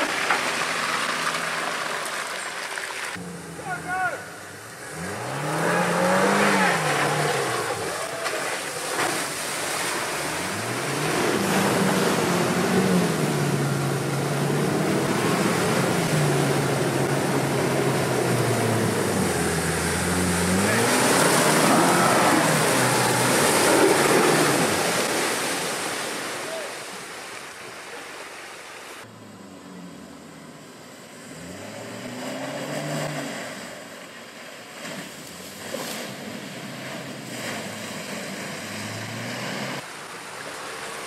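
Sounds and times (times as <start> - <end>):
mud and water splashing under tyres: 0.0 - 3.2, 4.8 - 29.1, 31.4 - 41.0
car engine revving: 3.2 - 25.6, 29.0 - 34.0, 35.4 - 39.8.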